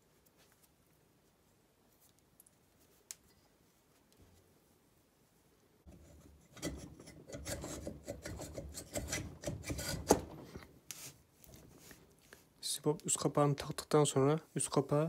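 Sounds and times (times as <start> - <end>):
metal scraping and rubbing: 5.9 - 10.7.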